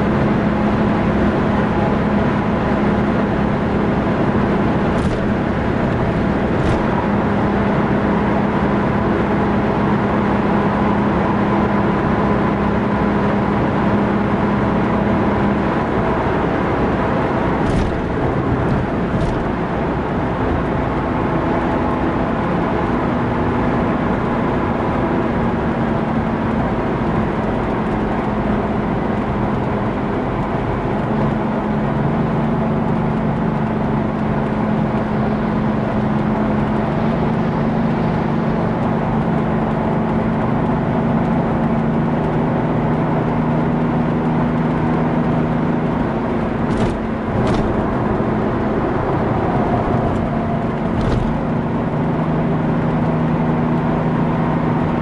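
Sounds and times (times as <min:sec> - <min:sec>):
car engine drone: 0:00.0 - 0:55.0
wind and tyre noise: 0:00.0 - 0:55.0.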